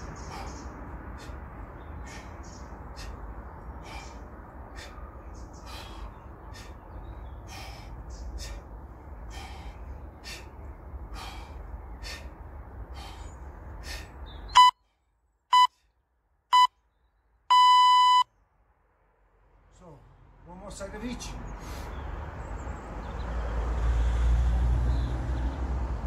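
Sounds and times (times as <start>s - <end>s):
outdoor hiss and rumble: 0.0s - 15.5s
man breathing sharply: 0.0s - 16.0s
electronic timer beeps: 14.6s - 14.8s, 15.5s - 15.7s, 17.5s - 18.2s.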